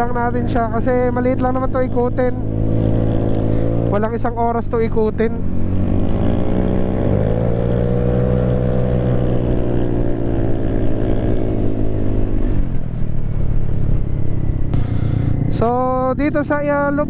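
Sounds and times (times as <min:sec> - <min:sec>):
scooter engine accelerating: 0:00.0 - 0:17.0.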